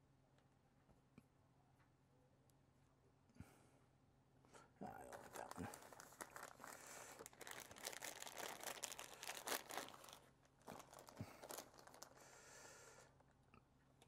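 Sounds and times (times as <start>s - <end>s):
plastic bag crinkling: 4.9s - 12.4s.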